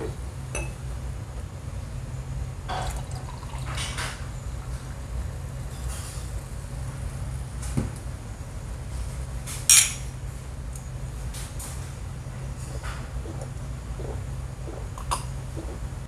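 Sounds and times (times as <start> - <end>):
steady low hum: 0.0 - 16.0
glasses clinking: 0.6 - 0.8
cola pouring into a glass: 2.7 - 4.0.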